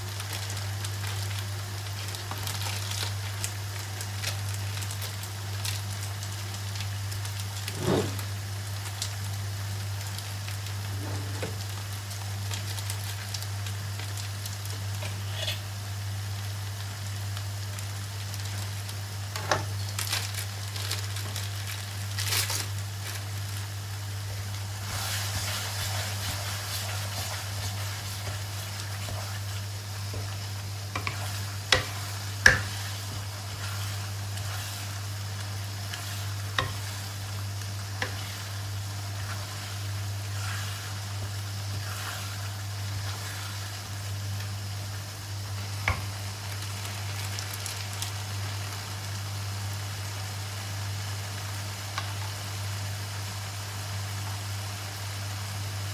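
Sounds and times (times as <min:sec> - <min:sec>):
chili paste sizzling in oil: 0:00.0 - 0:55.9
steady low hum: 0:23.0 - 0:46.1.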